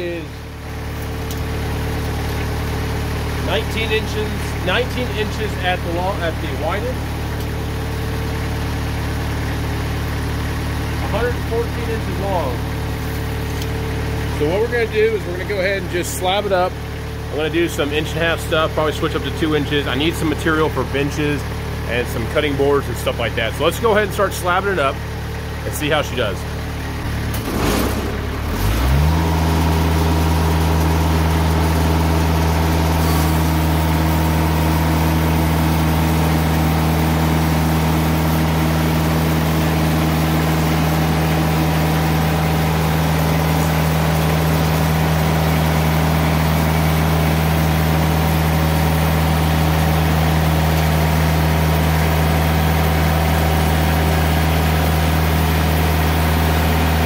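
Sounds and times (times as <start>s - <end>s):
sawmill engine humming: 0.0s - 57.0s
bandsaw blade cutting log: 32.9s - 33.8s.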